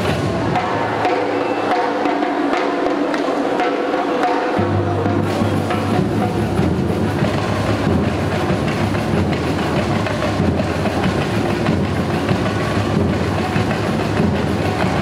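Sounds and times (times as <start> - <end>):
hand percussion: 0.0 - 15.0
snare drums: 0.0 - 15.0
bass drums: 4.6 - 15.0.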